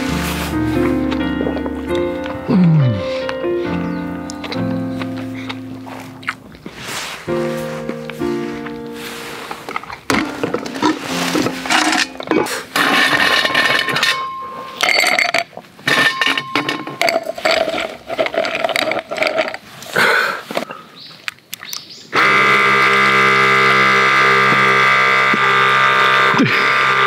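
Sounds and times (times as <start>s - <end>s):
electric pump whirring: 9.3s - 17.8s, 22.2s - 27.0s
ice cubes clinking into glass: 12.8s - 19.6s.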